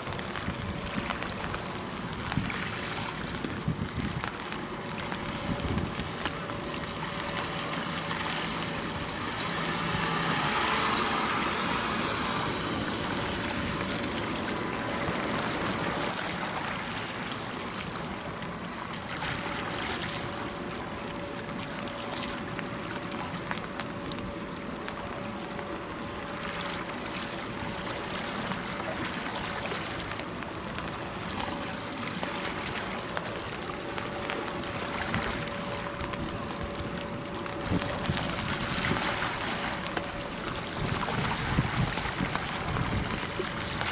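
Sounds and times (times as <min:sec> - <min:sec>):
rushing water jet and spray: 0:00.0 - 0:43.9
thin steady whine: 0:00.0 - 0:43.9.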